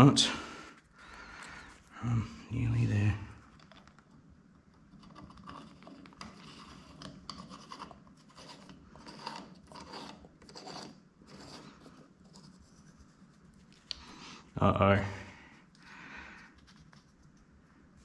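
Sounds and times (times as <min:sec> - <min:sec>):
metal threads scraping: 0:05.0 - 0:12.0.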